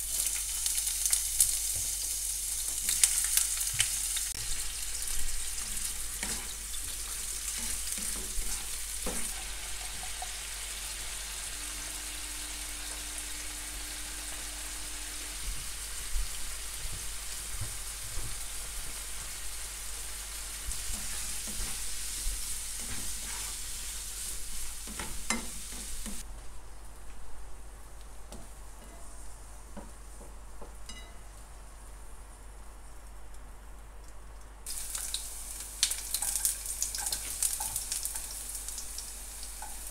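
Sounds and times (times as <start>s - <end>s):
shrimp sizzling in oil: 0.0s - 26.3s, 34.7s - 39.9s
spatula scraping a pan: 5.6s - 10.6s, 20.7s - 26.2s.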